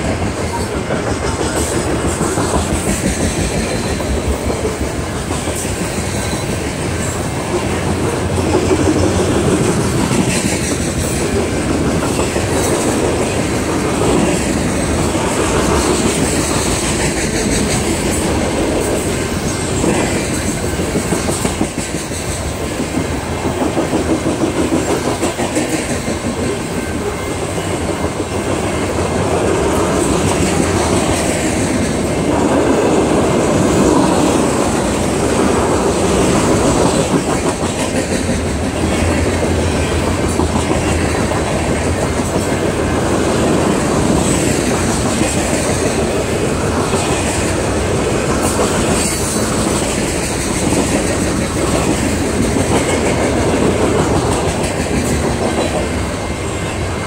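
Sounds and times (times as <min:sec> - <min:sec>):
freight train wheels on rails: 0:00.0 - 0:57.0.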